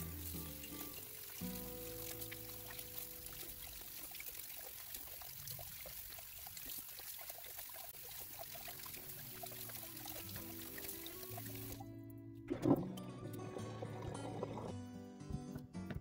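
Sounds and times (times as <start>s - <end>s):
water splashing and sloshing: 0.0s - 11.8s.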